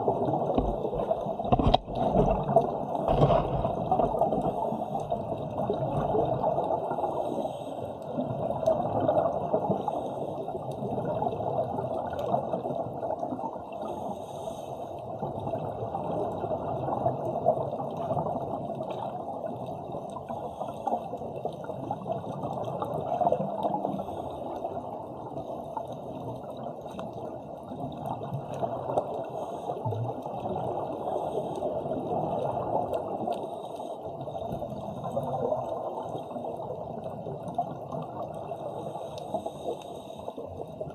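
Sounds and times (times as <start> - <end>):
gurgling and bubbling: 0.0 - 7.0
underwater rush of water: 0.0 - 40.9.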